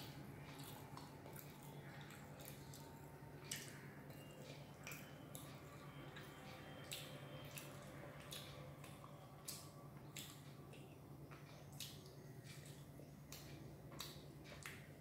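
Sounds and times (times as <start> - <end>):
mouth chewing food: 0.0 - 15.0.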